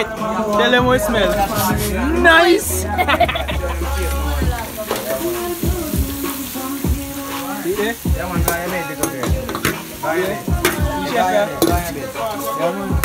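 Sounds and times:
chicken sizzling in frying pan: 3.0s - 13.0s.

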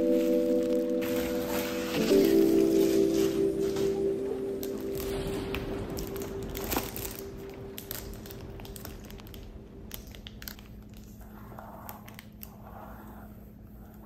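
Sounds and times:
soft background music: 0.0s - 11.2s
cellophane wrap crinkling: 0.0s - 12.9s.

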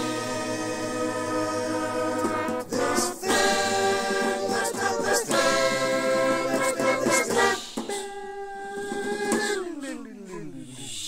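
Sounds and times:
a cappella voices singing chords: 0.0s - 9.8s.

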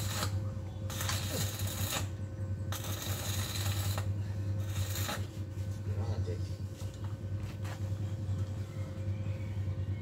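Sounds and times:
welding arc crackling: 0.0s - 5.4s
steady low hum: 0.0s - 10.0s.

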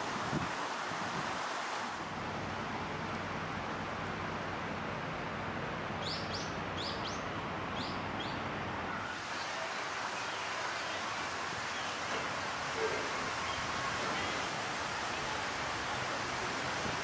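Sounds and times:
outdoor noise: 0.0s - 17.0s
bird chirping: 6.0s - 8.4s.

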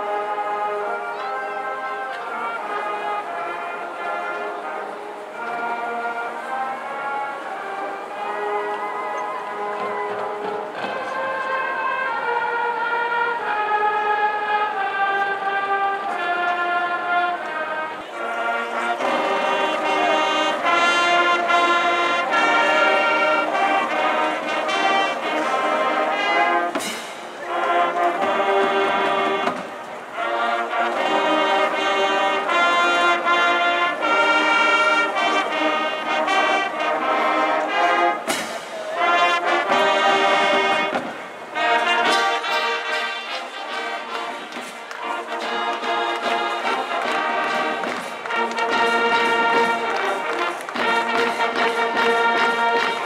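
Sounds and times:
marching band playing brass: 0.0s - 53.0s
sharp crashes: 38.2s - 39.0s.

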